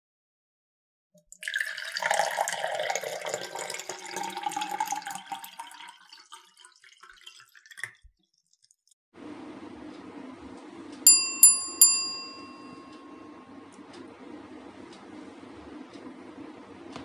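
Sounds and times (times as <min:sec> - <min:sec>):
liquid pouring with crackles: 0:01.2 - 0:09.0.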